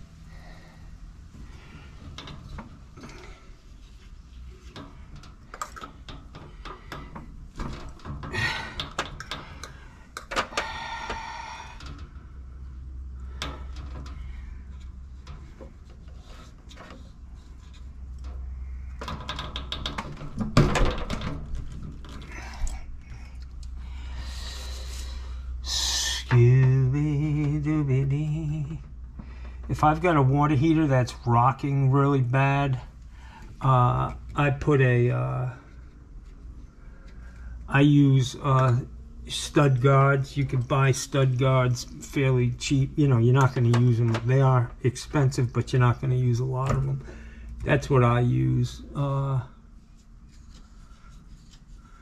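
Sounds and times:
low steady hum: 0.0s - 52.0s
pipe fittings and tools handled: 1.3s - 24.1s, 49.9s - 52.0s.

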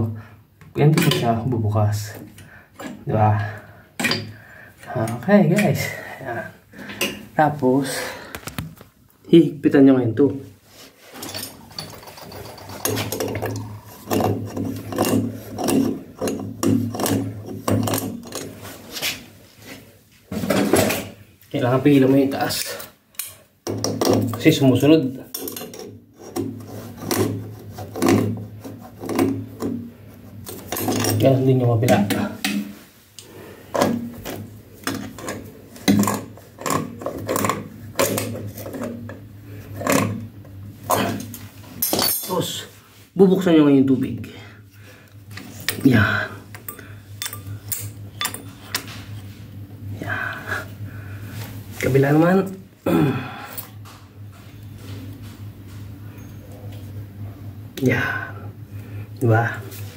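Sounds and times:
steady low hum: 0.0s - 59.9s
wrench scraping metal: 11.1s - 18.7s
metal fittings clinking: 11.2s - 18.5s.

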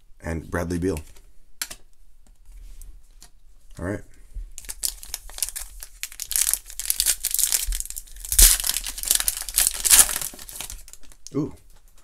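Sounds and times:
foil wrapper tearing and crinkling: 4.6s - 11.2s.

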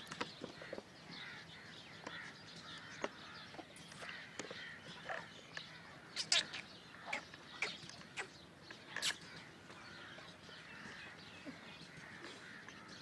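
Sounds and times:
birds calling: 0.0s - 13.0s.

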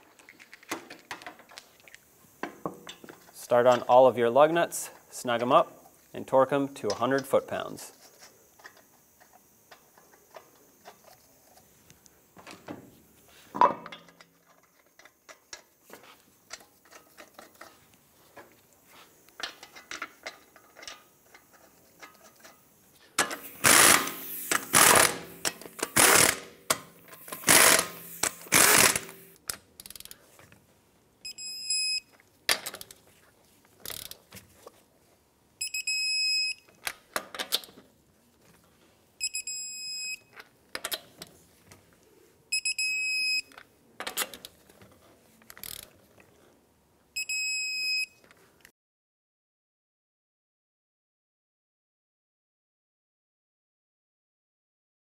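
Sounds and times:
impact gun bursts: 23.3s - 29.3s
torque wrench beeping: 23.3s - 30.0s, 31.2s - 32.1s, 35.6s - 36.7s, 39.2s - 40.3s, 42.5s - 43.5s.

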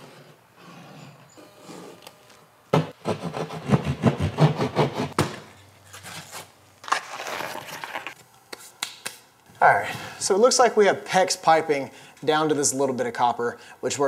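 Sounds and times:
saw cutting drywall: 3.0s - 5.2s.

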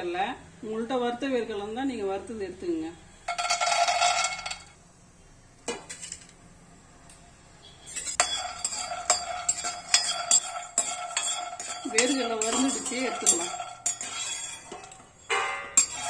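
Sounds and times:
ladle clinking and scraping pan: 3.3s - 4.7s, 5.7s - 6.3s, 7.8s - 16.0s
peanuts rattling into pan: 3.3s - 4.7s, 8.2s - 14.2s.

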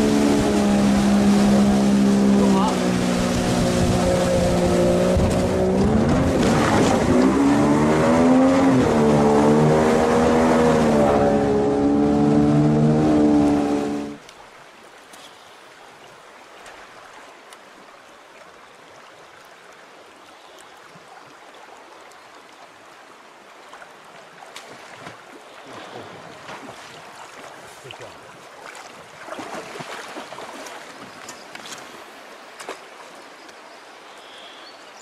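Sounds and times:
water splash: 0.0s - 14.2s, 24.4s - 32.0s
river water flowing: 0.0s - 35.0s.

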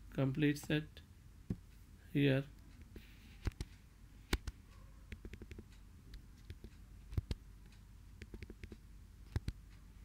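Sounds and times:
faint low hum: 0.0s - 10.0s
laptop keys clicking: 4.3s - 7.4s, 8.2s - 9.6s.

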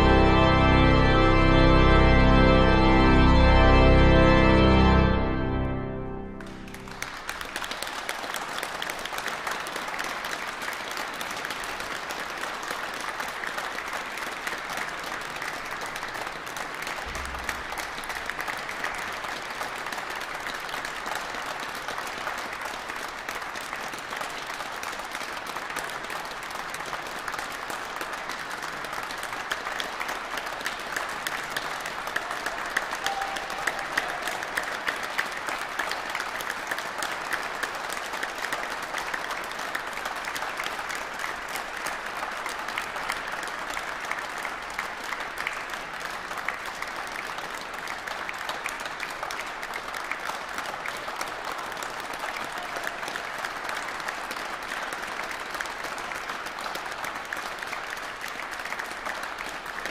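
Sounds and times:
audience applauding: 0.0s - 59.9s
single louder claps: 16.9s - 18.9s.

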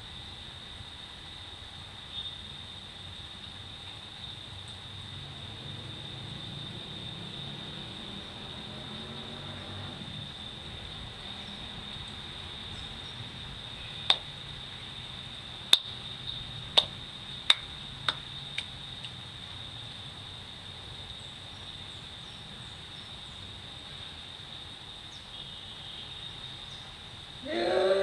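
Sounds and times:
faint background hiss: 0.0s - 28.0s
high-pitched insect trill: 0.1s - 28.0s
sharp snaps: 14.0s - 14.3s, 15.7s - 16.0s, 16.7s - 19.2s.

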